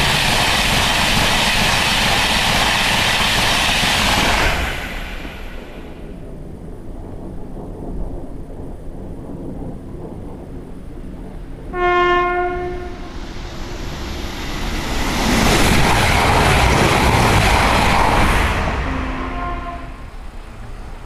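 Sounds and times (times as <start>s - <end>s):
train wheels rushing on rail: 0.0s - 21.0s
train horn blast: 11.7s - 13.1s, 18.7s - 20.3s.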